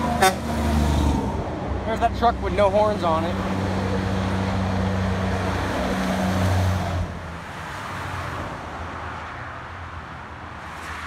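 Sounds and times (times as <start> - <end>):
diesel truck engine passing: 0.0 - 8.5
highway traffic and tyre noise: 0.0 - 11.0.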